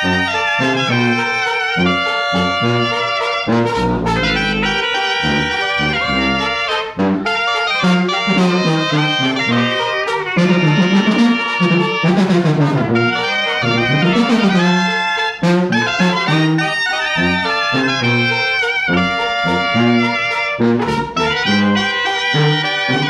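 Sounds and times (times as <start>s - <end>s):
clarinets and brass melody: 0.0s - 23.0s
low bass line: 2.4s - 7.3s, 20.6s - 21.8s.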